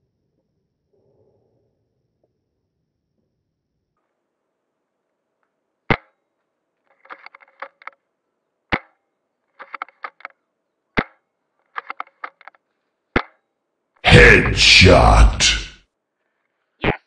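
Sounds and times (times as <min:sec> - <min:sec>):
small mechanical clicks: 0:09.6 - 0:10.4, 0:11.7 - 0:12.6.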